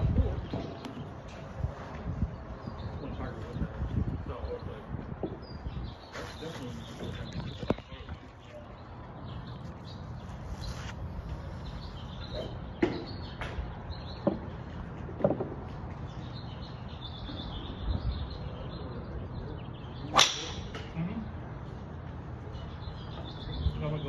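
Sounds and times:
birds chirping: 0.0s - 24.0s
golf clubs striking balls: 12.2s - 16.1s, 20.1s - 21.0s.

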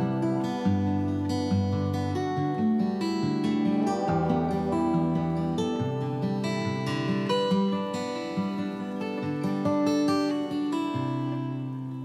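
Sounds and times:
acoustic guitar music: 0.0s - 12.0s.

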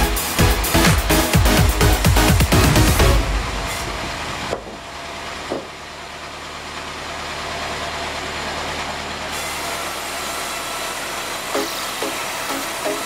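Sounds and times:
sawmill machinery humming: 0.0s - 13.0s
timber knock: 4.5s - 4.8s, 5.5s - 5.8s.

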